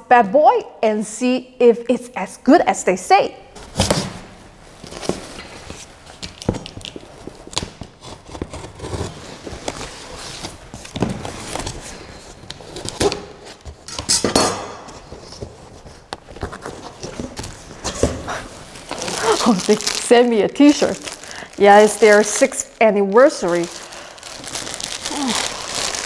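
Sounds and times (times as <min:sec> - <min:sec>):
cardboard scraping and rustling: 0:04.8 - 0:13.8, 0:15.0 - 0:20.0.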